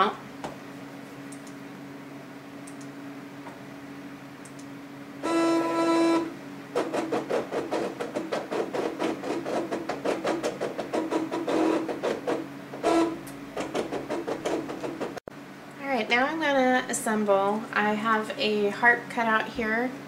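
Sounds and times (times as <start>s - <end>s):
faint machine hum: 0.0s - 20.0s
motor whine: 5.2s - 7.1s.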